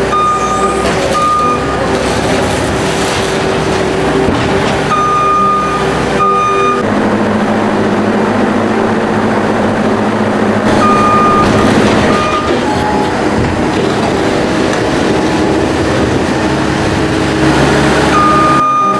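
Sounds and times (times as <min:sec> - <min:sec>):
backup alarm long beeps: 0:00.0 - 0:01.8, 0:04.9 - 0:06.9, 0:10.7 - 0:12.9, 0:18.1 - 0:18.9
skid steer loader running: 0:00.0 - 0:18.9.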